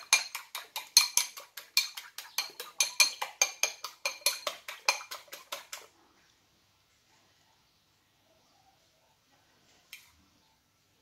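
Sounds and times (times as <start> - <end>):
utensil clicking against a ceramic bowl: 0.0 - 5.8.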